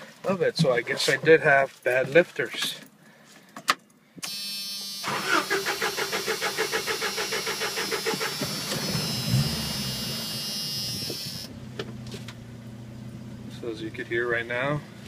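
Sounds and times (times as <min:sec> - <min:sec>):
starter cranking engine: 0:05.0 - 0:11.5
car engine idling: 0:05.6 - 0:15.0.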